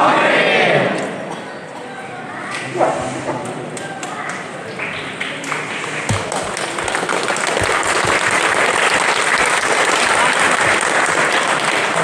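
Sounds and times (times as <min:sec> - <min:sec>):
crowd applauding: 0:03.8 - 0:12.0.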